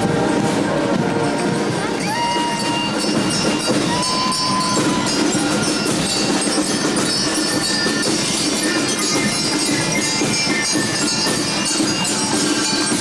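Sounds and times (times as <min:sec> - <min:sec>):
crowd noise: 0:00.0 - 0:13.0
horse hooves: 0:00.0 - 0:13.0
parade music: 0:00.0 - 0:13.0.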